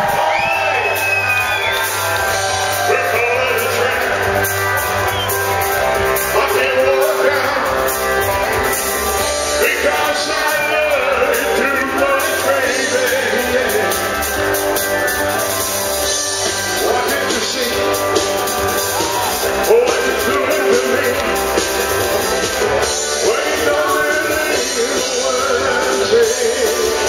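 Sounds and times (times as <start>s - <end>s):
bass guitar: 0.0s - 27.0s
drums: 0.0s - 27.0s
man singing into a microphone: 2.7s - 4.4s, 6.3s - 7.9s, 9.5s - 14.3s, 16.4s - 18.3s, 19.4s - 21.8s, 22.9s - 27.0s.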